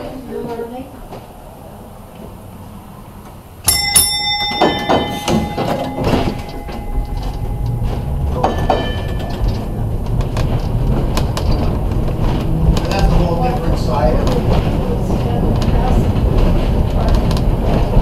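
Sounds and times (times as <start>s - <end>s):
motors and wheels rumbling on rails: 0.0s - 18.0s
streetcar gong ringing: 3.5s - 17.3s.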